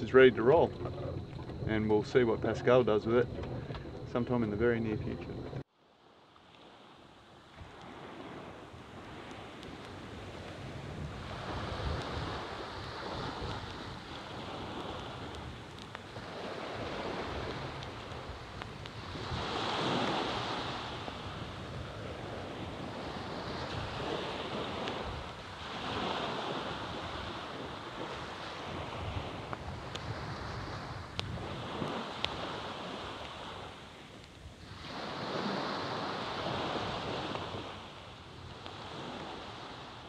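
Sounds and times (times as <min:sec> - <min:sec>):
wind rumbling on microphone: 0:00.0 - 0:05.6, 0:06.7 - 0:40.0
small waves washing onto sand: 0:06.0 - 0:40.0.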